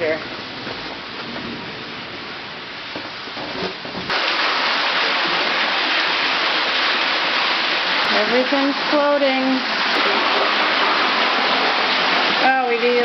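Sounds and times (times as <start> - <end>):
floodwater rushing and splashing: 4.1 - 13.0.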